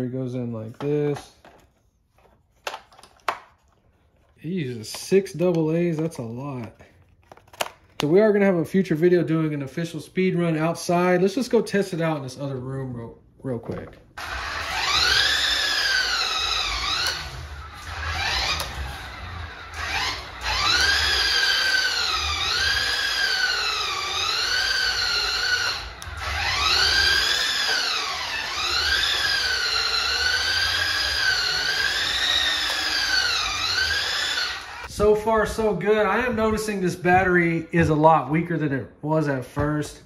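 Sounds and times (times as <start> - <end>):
electric motor whining: 14.2 - 36.7.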